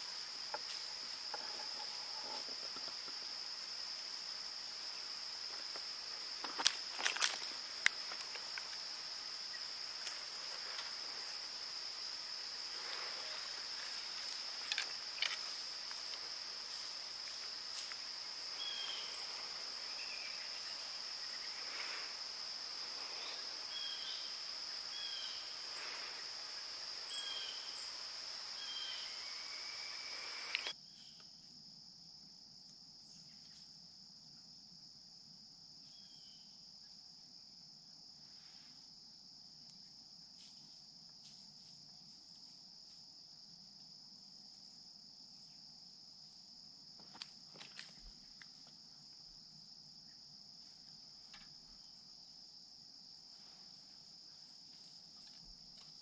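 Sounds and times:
short insect chirps: 0.0 - 31.5, 35.8 - 36.6
cricket chorus: 0.0 - 56.0.

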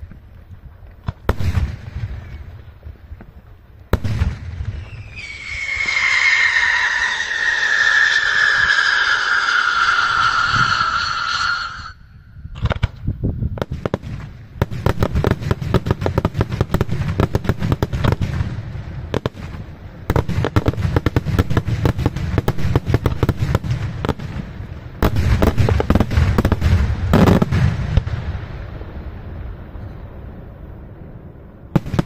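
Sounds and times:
firework bangs: 1.0 - 2.6, 3.9 - 13.0, 13.6 - 29.0, 31.7 - 32.0.

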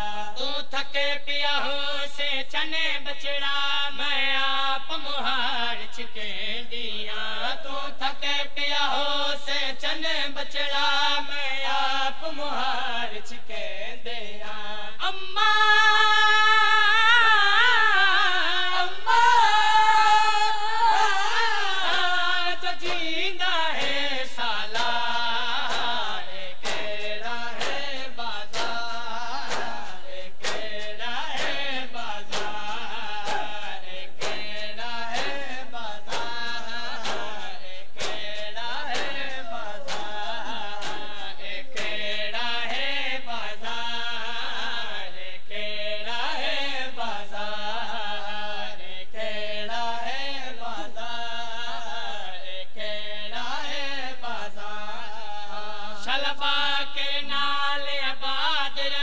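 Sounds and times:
man singing a lament: 0.0 - 59.0
hands slapping on chests: 24.7 - 42.1.

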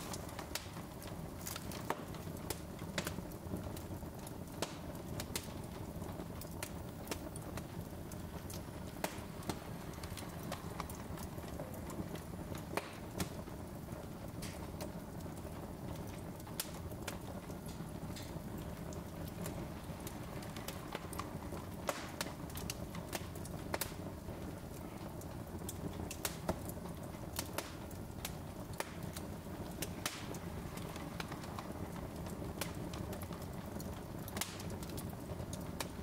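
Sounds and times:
low rush of flame: 0.0 - 36.0
wood fire crackling and popping: 0.0 - 36.0.

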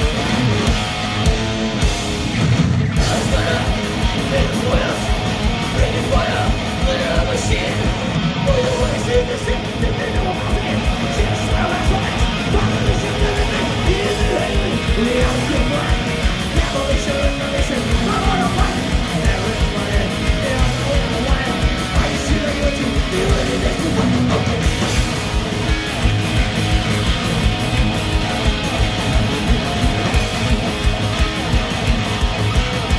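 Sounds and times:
lead guitar line: 0.0 - 32.9
live rock band playing: 0.0 - 32.9.

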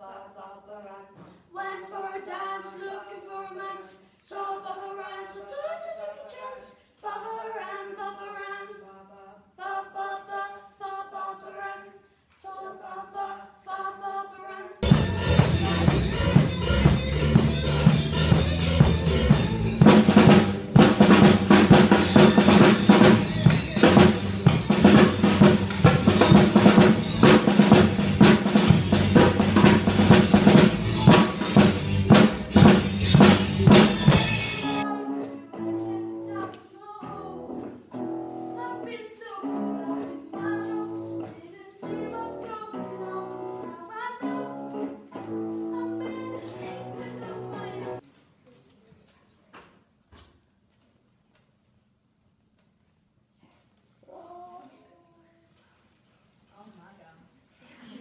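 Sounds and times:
drum kit played loudly: 14.8 - 34.8.

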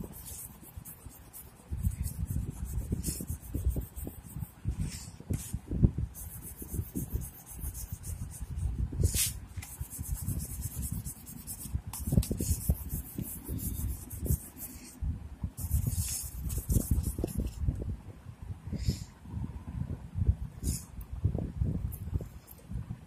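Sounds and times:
oil pastel scraping on paper: 0.0 - 5.6, 6.2 - 15.0, 15.6 - 17.6.

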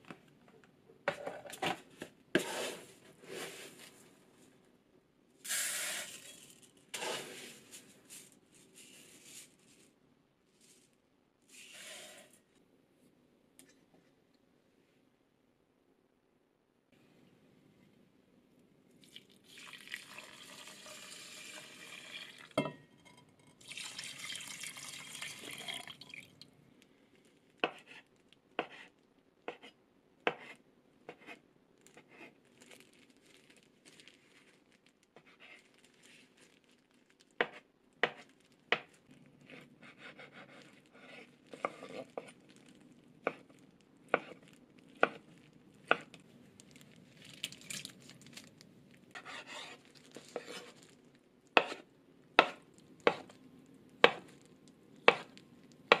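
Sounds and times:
broth being poured into a pot: 19.0 - 22.6, 23.6 - 26.4.

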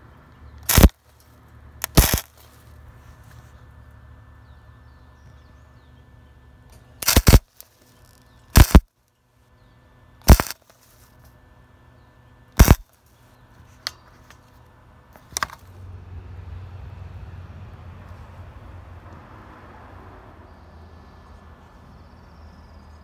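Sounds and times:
welding arc crackling: 0.6 - 2.7, 7.0 - 8.9, 10.2 - 11.1, 12.6 - 13.0.

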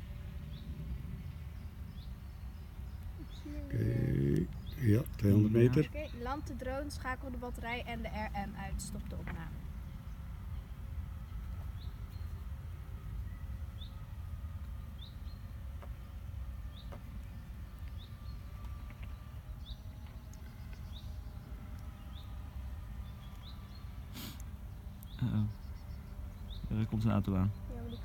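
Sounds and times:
steady low rumble: 0.0 - 28.0
bird chirping: 0.5 - 6.9, 13.2 - 28.0.

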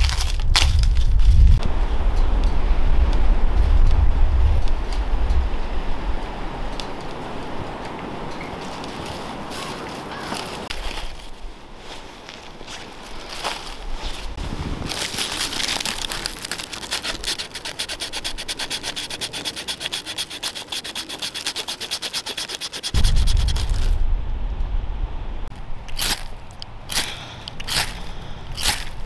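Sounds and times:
low rumble: 0.1 - 6.2, 23.0 - 26.9
knife scraping bark: 15.3 - 23.9, 25.9 - 26.3, 26.9 - 29.0
ferro rod striking: 22.9 - 27.1.

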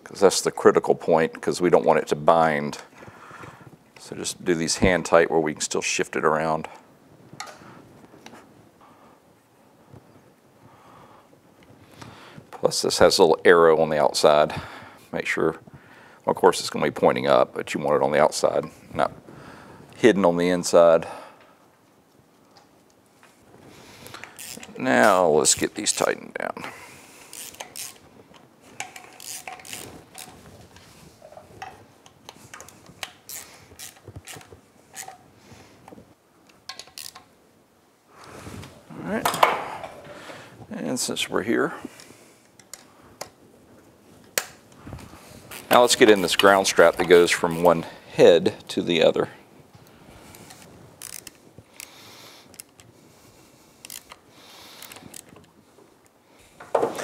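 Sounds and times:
ratchet metallic clicks: 24.1 - 25.2, 27.3 - 28.0, 28.8 - 30.4, 32.6 - 35.2, 36.7 - 37.2, 50.4 - 51.9, 53.8 - 54.2
tool clicking on metal: 28.8 - 30.4.

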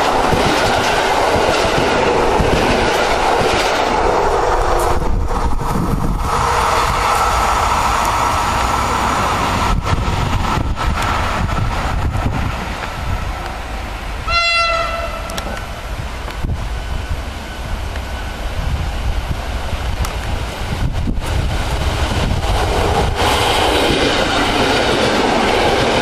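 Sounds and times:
train horn blast: 14.3 - 15.4.

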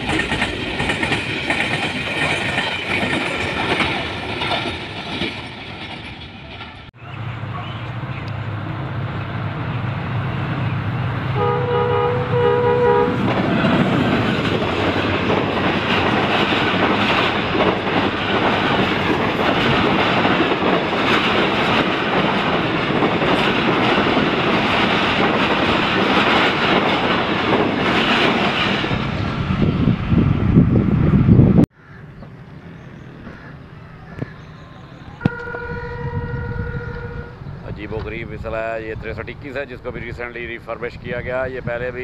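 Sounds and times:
wheels clattering over rail joints: 0.0 - 6.9, 13.2 - 29.4
train rumbling past: 0.0 - 42.0
train horn: 11.3 - 13.8, 35.2 - 37.5.

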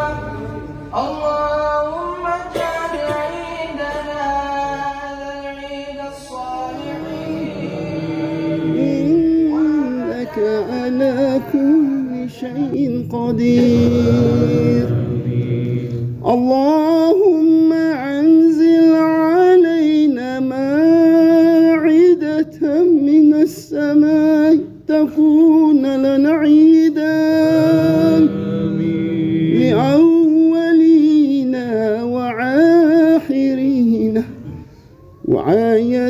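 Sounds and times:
person chanting devotional melody: 0.0 - 36.0.

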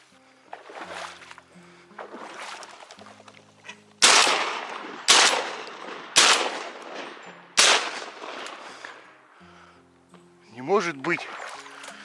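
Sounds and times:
shotgun shots with echo: 4.0 - 9.0.

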